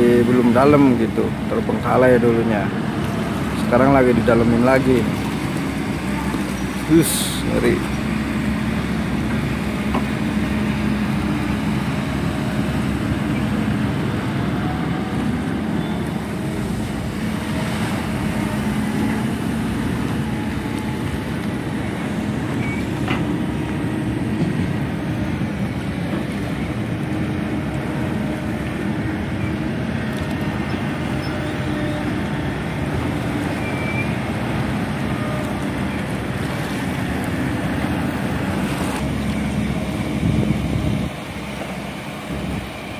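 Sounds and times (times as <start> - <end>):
engine droning: 0.0 - 42.9.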